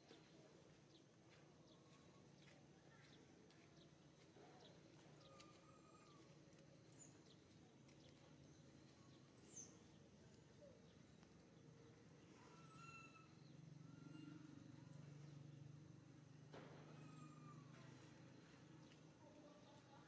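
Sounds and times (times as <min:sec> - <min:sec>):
faint bird chirps: 0:04.4 - 0:15.6, 0:16.9 - 0:20.0.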